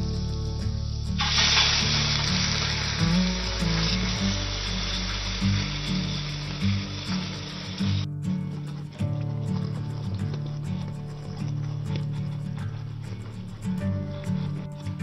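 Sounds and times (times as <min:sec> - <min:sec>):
background music: 0:00.0 - 0:15.0
food sizzling in a frying pan: 0:01.2 - 0:08.0.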